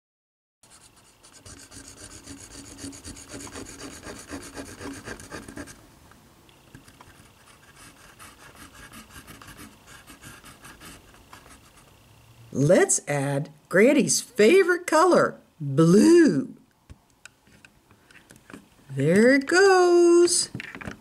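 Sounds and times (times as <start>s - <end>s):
pen tip scratching on paper: 0.7s - 5.8s, 7.0s - 11.9s.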